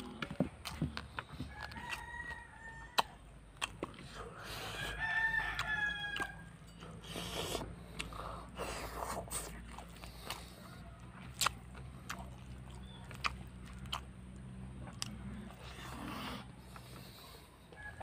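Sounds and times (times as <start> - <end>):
low steady hum: 0.0 - 18.0
man chewing food: 0.0 - 18.0
lip-smacking clicks: 2.9 - 4.2.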